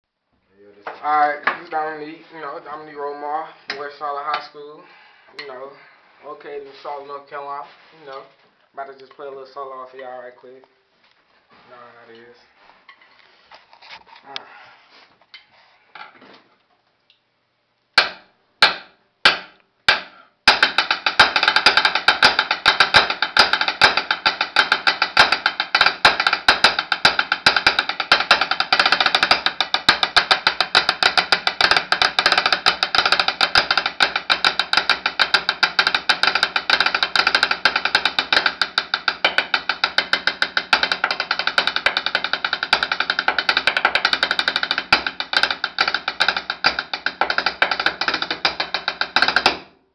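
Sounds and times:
drumsticks on wooden board: 18.0s - 49.7s.

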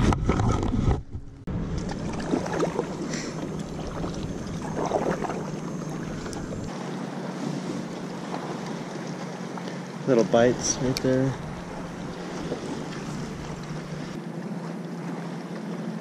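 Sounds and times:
loud water splash: 1.8s - 6.7s
paddle strokes splashing water: 1.8s - 16.0s.

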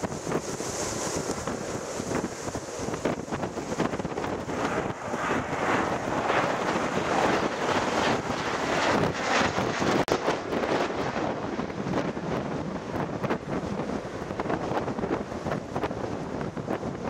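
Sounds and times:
jet airliner passing overhead: 0.0s - 17.0s
wind rumble on microphone: 0.0s - 17.0s.

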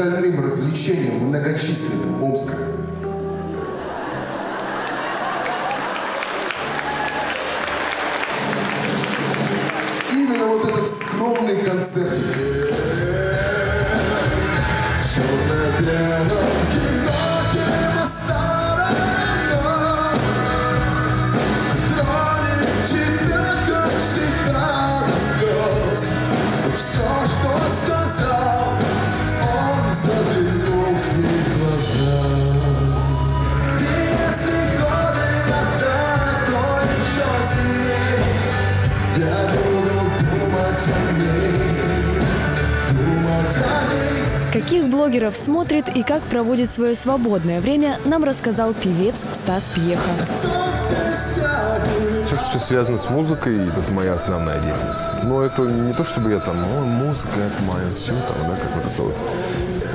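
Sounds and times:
live band playing: 0.0s - 59.9s
man singing into a microphone: 10.2s - 44.8s, 50.0s - 59.9s.

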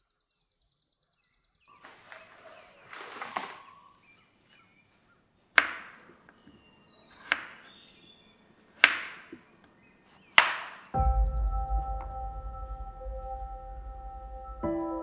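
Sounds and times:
knife chopping on wooden board: 5.6s - 6.0s, 7.2s - 7.6s, 8.8s - 9.4s, 10.4s - 10.7s.

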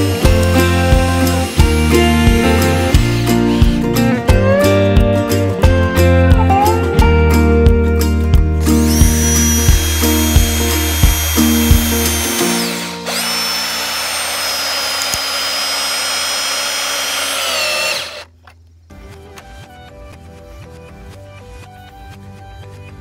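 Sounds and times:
cordless drill whining: 0.0s - 3.8s, 8.8s - 18.3s
background music with beat: 0.0s - 12.8s, 18.9s - 23.0s.

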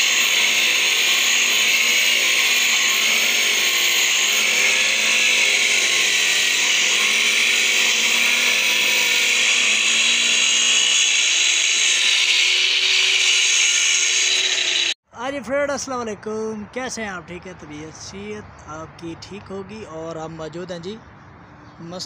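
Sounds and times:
angle grinder cutting stone: 0.0s - 15.0s.

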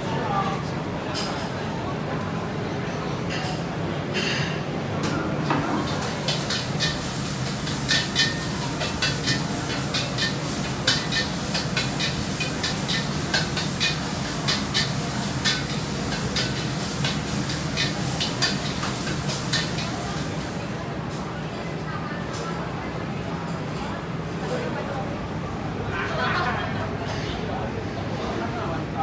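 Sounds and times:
utensils and dishes clinking: 0.6s - 1.6s, 3.2s - 20.7s
cooking noise: 3.3s - 21.2s.

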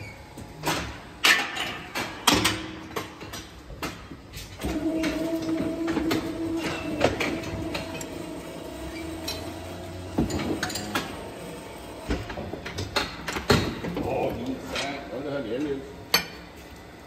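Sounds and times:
motor humming: 4.6s - 14.6s.

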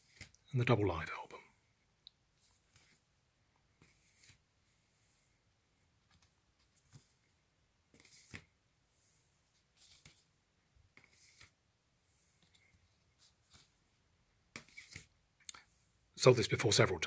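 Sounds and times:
cardboard record sleeves flipping: 7.9s - 8.6s, 9.8s - 10.3s, 14.5s - 15.1s.

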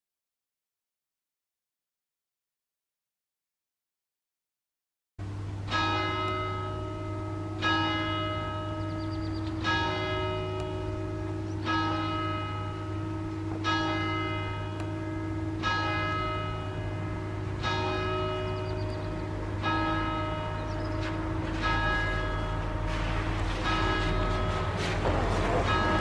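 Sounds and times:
large church bell ringing: 5.5s - 26.0s.

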